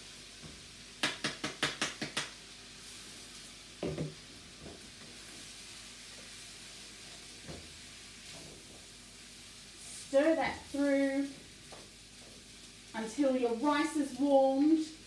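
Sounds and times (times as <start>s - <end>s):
wok sizzling: 0.0s - 15.0s.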